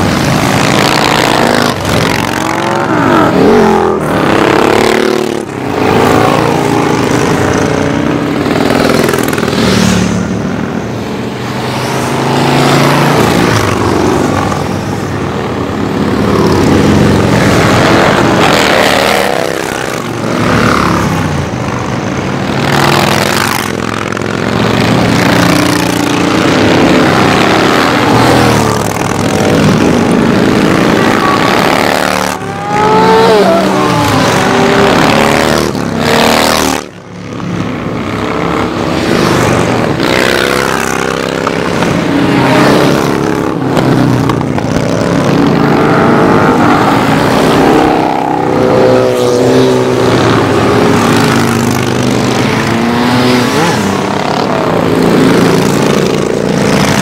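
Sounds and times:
motorcycles rumbling and revving past: 0.0s - 57.0s.

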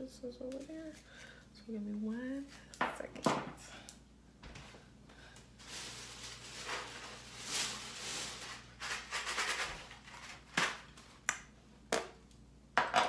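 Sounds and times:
rustling and handling noises: 0.4s - 1.4s, 3.9s - 11.2s.

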